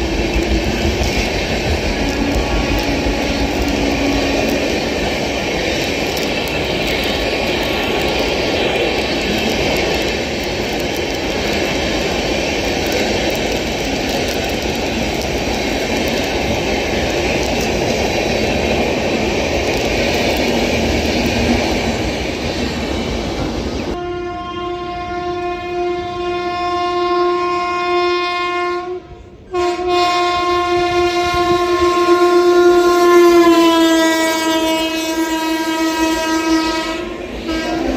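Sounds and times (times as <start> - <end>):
train passing rumble: 0.0 - 37.9
train horn: 1.9 - 4.8, 23.9 - 37.9.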